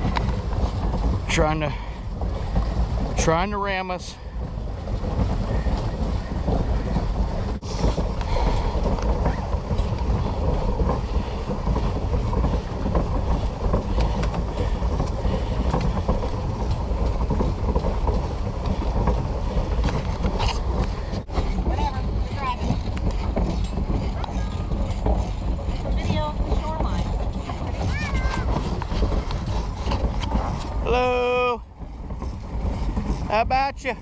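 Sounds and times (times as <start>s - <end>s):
paddle wheel churning: 0.0s - 34.0s
wind buffeting microphone: 0.0s - 34.0s.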